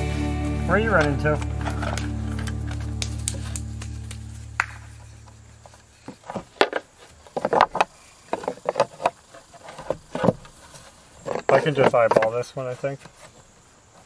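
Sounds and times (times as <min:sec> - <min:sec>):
wooden boards knocking and scraping: 0:05.6 - 0:13.5.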